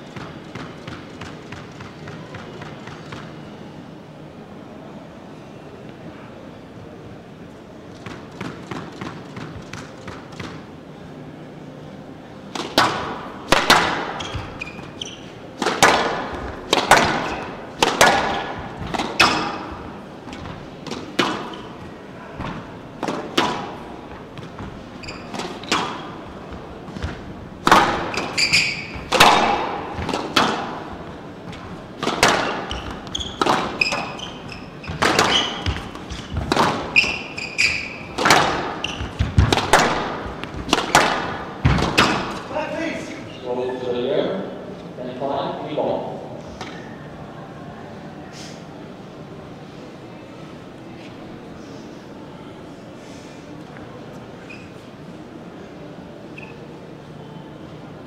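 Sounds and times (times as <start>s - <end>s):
squash ball cracking off rackets: 12.5s - 42.5s
shoes squeaking on wooden floor: 14.1s - 15.4s, 24.0s - 40.8s.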